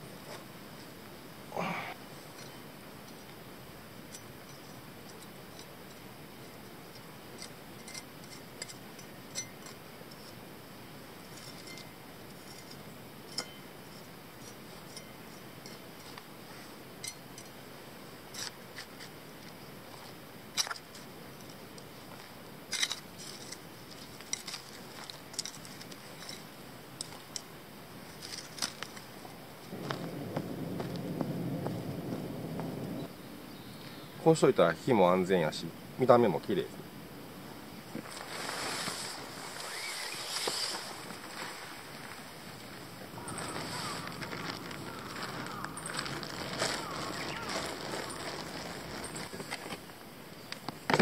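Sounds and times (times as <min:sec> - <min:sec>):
charcoal clicking and scraping: 0:22.7 - 0:27.5, 0:43.2 - 0:49.9.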